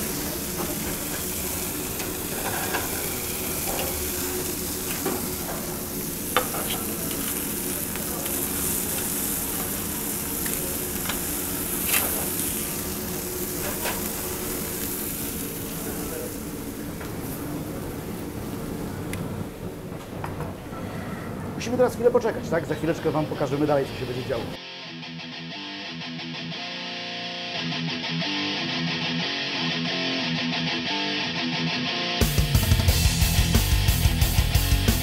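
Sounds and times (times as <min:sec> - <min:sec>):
steaks sizzling in a skillet: 0:00.0 - 0:17.4.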